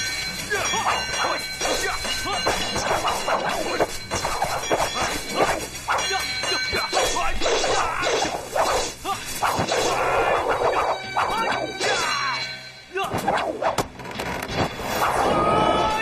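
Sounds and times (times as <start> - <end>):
film music: 0.0 - 14.0
people shouting: 0.5 - 8.4, 9.0 - 12.4, 15.0 - 16.0
swishes: 2.6 - 11.7.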